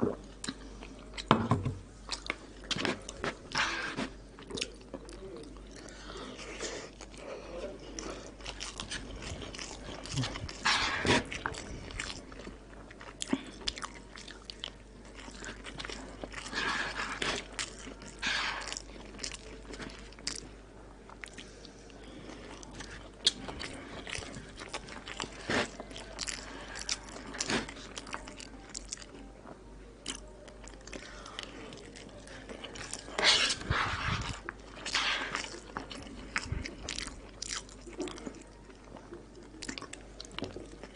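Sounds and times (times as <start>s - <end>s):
man chewing and biting: 8.0s - 20.5s, 30.0s - 40.9s.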